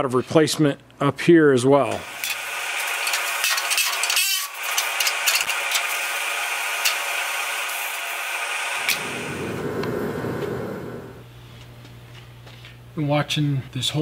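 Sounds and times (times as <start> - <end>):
power tool on sheet metal: 2.0 - 11.2.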